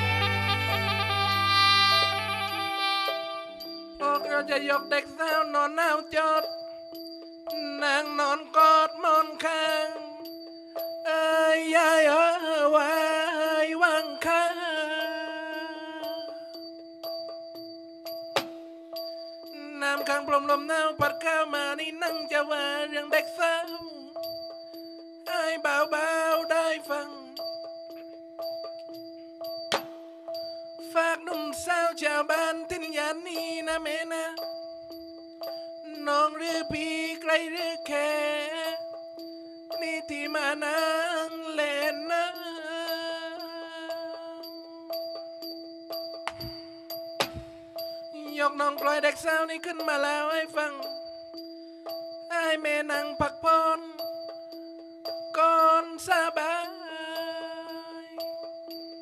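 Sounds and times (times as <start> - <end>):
held drone note: 0.0 - 3.8
man singing ornamented verse: 0.0 - 6.6, 7.6 - 10.3, 11.0 - 16.4, 19.5 - 24.2, 25.3 - 27.5, 30.9 - 34.4, 35.8 - 38.9, 39.7 - 44.7, 48.1 - 51.0, 52.3 - 54.1, 55.3 - 58.4
wavering melody over drone: 0.0 - 59.0
light percussion ticks: 16.0 - 59.0.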